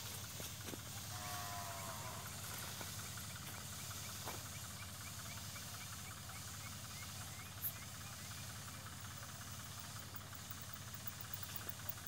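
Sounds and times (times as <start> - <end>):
tractor engine running: 0.0 - 12.0
pressurized spray hissing: 1.8 - 12.0
faint chirp: 2.9 - 10.2.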